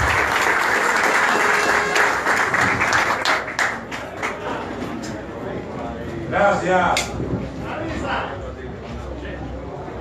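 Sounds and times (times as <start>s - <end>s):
crowd applauding: 0.0s - 4.6s.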